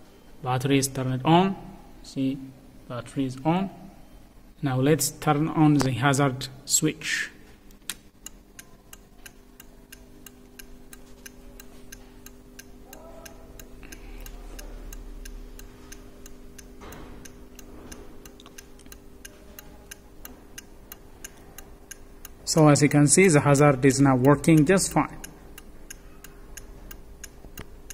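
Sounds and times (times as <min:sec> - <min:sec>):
faint steady hum: 0:00.0 - 0:27.9
flasher relay clicking: 0:07.6 - 0:27.9.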